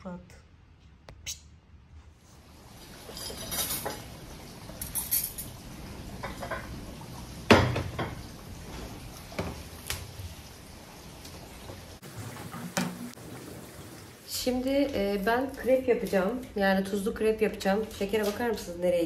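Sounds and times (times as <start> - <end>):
plates clinking on glass table: 3.0 - 4.1, 6.2 - 6.7.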